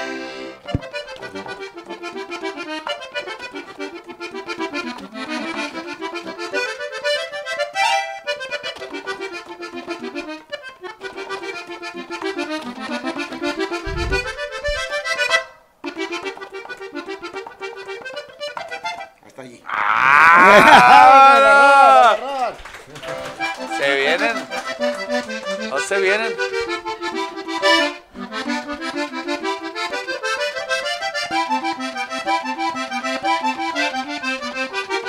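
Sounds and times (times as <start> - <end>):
button accordion playing: 0.0 - 19.2, 23.0 - 35.0
person shouting: 19.6 - 22.6.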